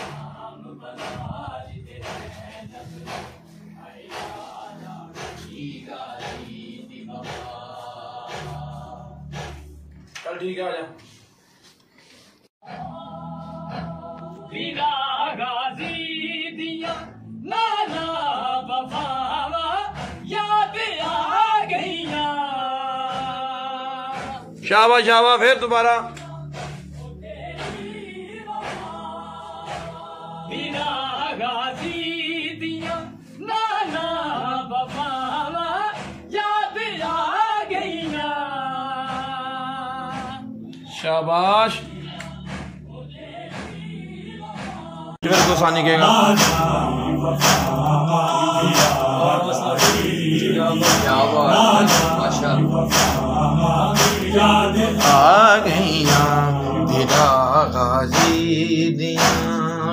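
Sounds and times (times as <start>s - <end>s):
man singing a lament: 0.0s - 9.3s, 13.6s - 26.5s, 27.1s - 40.5s, 42.9s - 59.9s
steady beat: 1.0s - 9.8s, 45.2s - 59.9s
man chanting mournfully: 45.2s - 59.9s
low drone: 45.3s - 59.9s.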